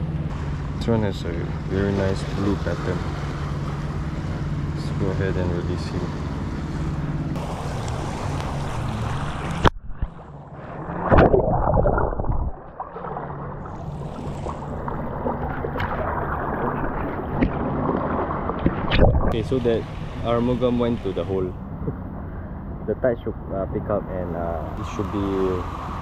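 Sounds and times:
water sloshing and gurgling: 0.0 - 26.0
wind on microphone: 7.3 - 12.8, 13.7 - 19.9
loud splash: 7.4 - 19.5.

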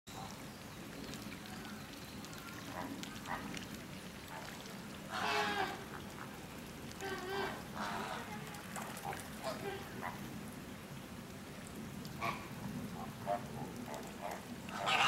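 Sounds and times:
flamingos honking: 5.1 - 6.4, 14.2 - 15.0.

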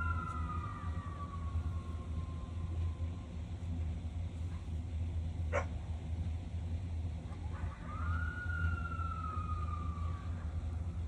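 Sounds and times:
coyote howling: 0.0 - 3.4, 7.4 - 10.9
steady low hum: 0.0 - 11.0.

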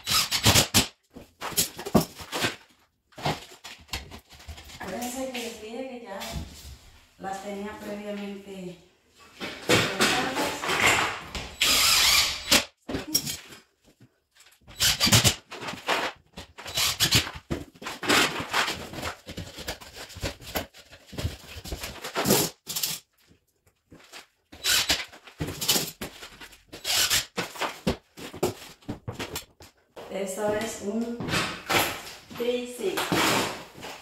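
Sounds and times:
drywall knocking and scraping: 9.4 - 11.6, 23.8 - 34.0
cordless drill driving screws: 11.6 - 12.7, 24.6 - 25.0.

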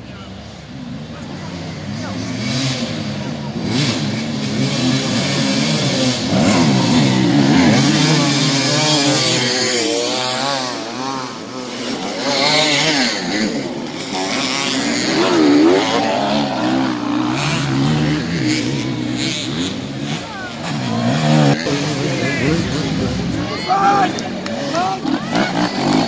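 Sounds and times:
dirt bike engines revving: 0.0 - 26.0.

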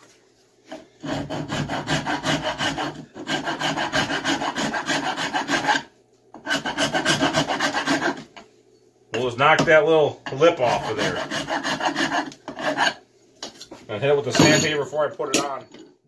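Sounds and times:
rasp filing wood: 0.7 - 8.3, 10.6 - 13.0.

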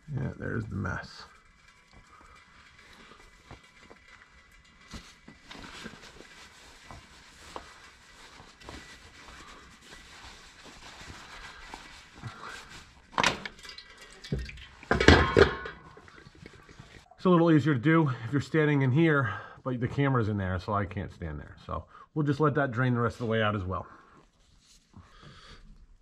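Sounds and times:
oil dripping into a drain pan: 13.2 - 16.2.

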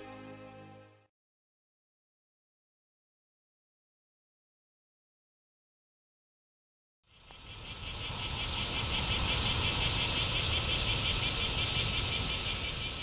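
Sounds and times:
cicada buzzing: 7.1 - 13.0.

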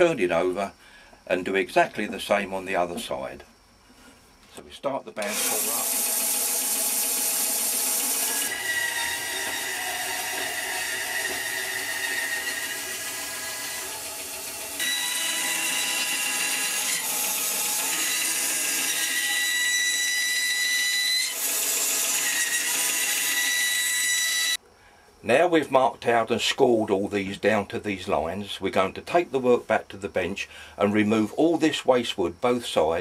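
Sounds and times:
bandsaw cutting wood: 5.2 - 24.6.

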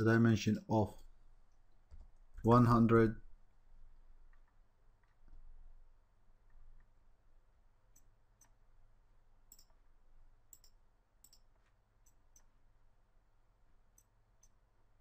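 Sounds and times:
low steady room hum: 0.0 - 15.0
faint computer mouse clicks: 9.5 - 9.8, 10.5 - 12.5.

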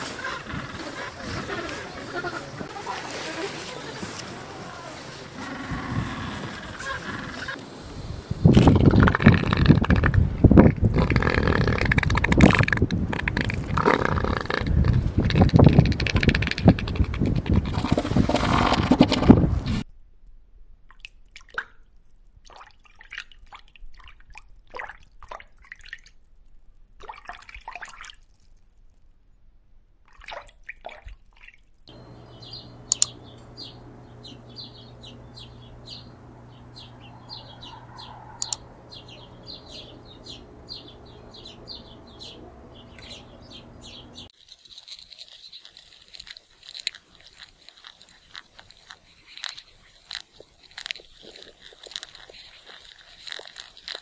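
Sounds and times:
water dripping and bubbling: 20.9 - 29.2, 30.0 - 31.9, 45.6 - 54.0
low steady hum: 31.9 - 44.3
bird chirping: 31.9 - 45.9.

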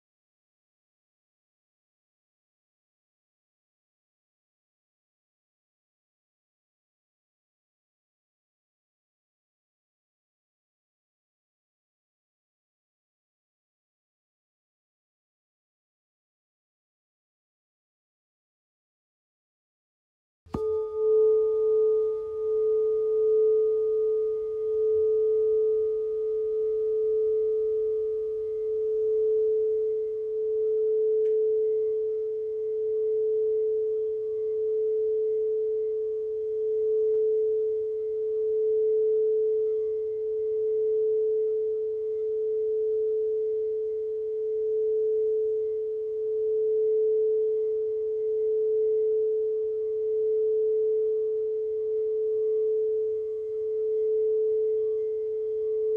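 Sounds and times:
singing bowl tone: 20.5 - 55.9.

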